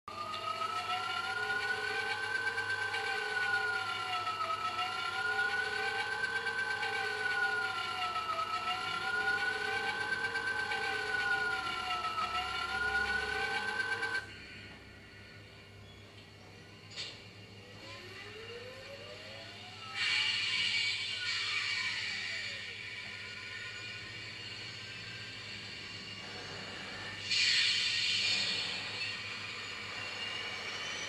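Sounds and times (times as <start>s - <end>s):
electronic siren-like tone: 0.1s - 14.4s, 17.6s - 25.4s.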